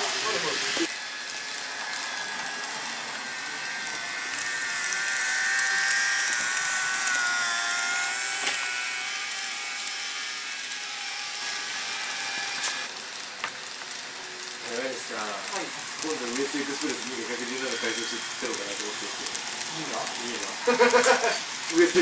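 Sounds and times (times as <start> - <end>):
model train motor whine: 0.0 - 22.0
wheels hissing on rails: 0.0 - 22.0.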